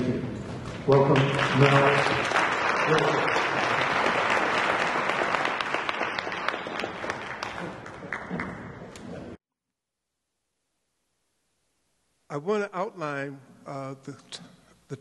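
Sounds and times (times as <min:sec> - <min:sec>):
audience applauding: 0:00.8 - 0:09.4.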